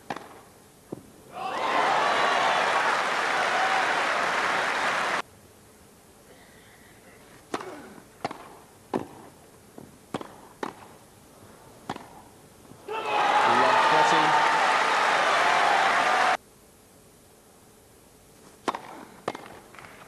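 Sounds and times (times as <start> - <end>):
crowd applauding: 1.4 - 5.2, 13.1 - 16.4
racket hitting tennis ball: 7.5 - 9.3, 10.1 - 11.0, 11.8 - 12.3, 18.6 - 19.6.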